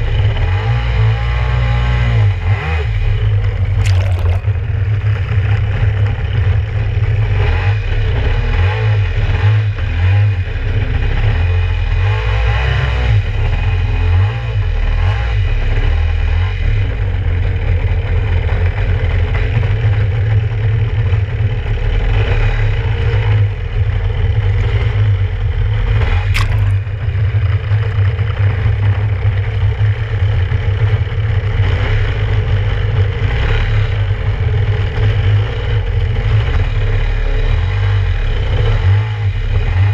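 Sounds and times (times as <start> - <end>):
water rushing against hull: 3.6 - 4.8, 26.4 - 27.2
sharp click: 26.4 - 26.8.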